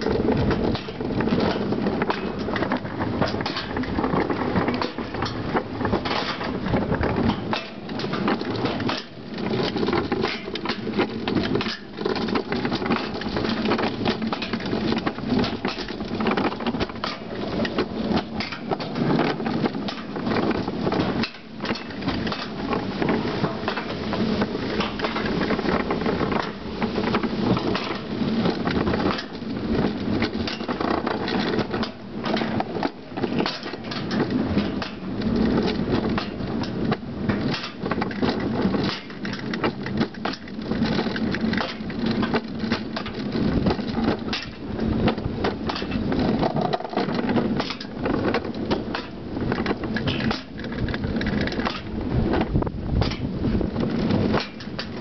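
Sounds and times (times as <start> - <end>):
bobsled rumbling on metal track: 0.0 - 55.0
clacks over track joints: 0.0 - 55.0.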